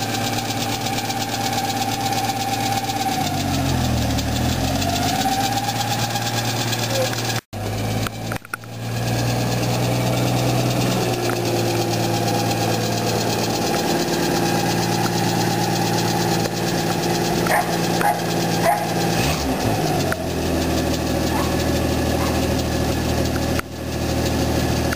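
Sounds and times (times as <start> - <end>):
pickup engine running at low speed: 0.0 - 24.9
dog barking: 17.4 - 19.0, 21.3 - 21.6, 22.2 - 22.5.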